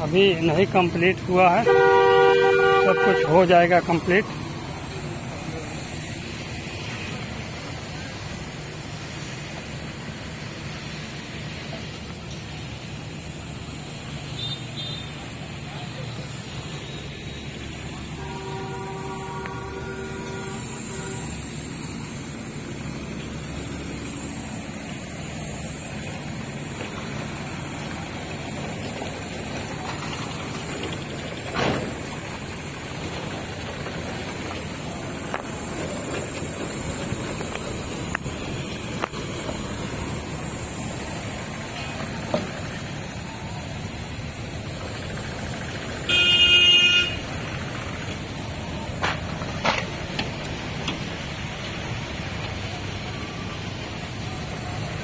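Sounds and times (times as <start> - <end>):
road traffic rumble: 0.0 - 55.0
vehicle horn honking: 1.6 - 3.8, 14.4 - 15.1, 18.0 - 21.5, 46.1 - 47.3
thin high hiss: 16.6 - 27.9.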